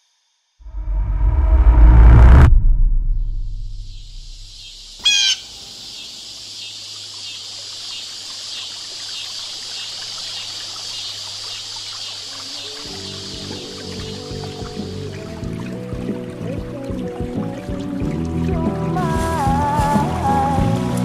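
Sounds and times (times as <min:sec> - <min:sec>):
trickling water hiss: 0:04.5 - 0:21.0
music: 0:12.5 - 0:21.0.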